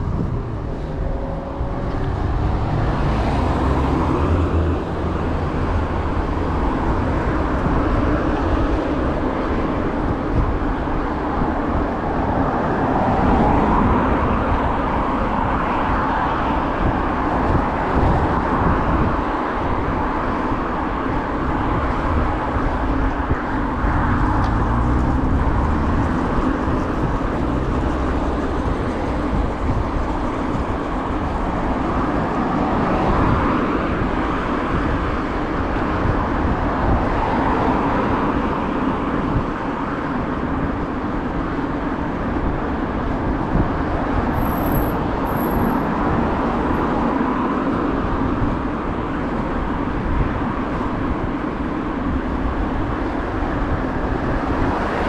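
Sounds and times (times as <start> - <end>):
constant low rumble: 0.0 - 2.8
cars driving past: 0.0 - 55.0.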